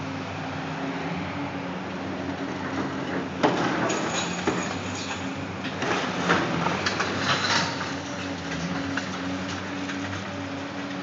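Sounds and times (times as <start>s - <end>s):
concrete cracking and clattering: 3.4s - 10.2s.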